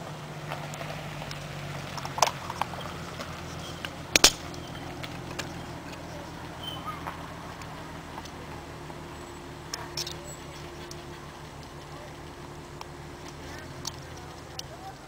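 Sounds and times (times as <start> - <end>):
low hum: 0.0 - 15.0
plastic parts clicking and snapping: 3.8 - 4.6.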